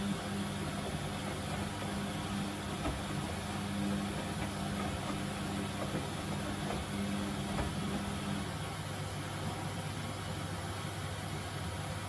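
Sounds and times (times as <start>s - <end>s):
washing machine drum turning: 0.0s - 8.6s.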